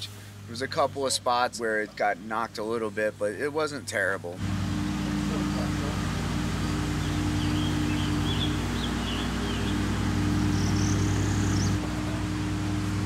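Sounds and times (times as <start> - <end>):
motor humming: 4.4 - 13.0
birds chirping faintly: 4.9 - 13.0.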